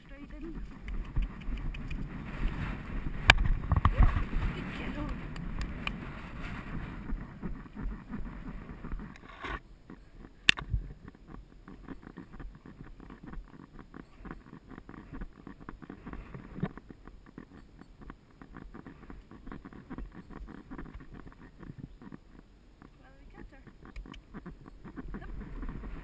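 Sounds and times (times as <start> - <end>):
sharp click: 0.8 - 2.0, 10.5 - 10.7.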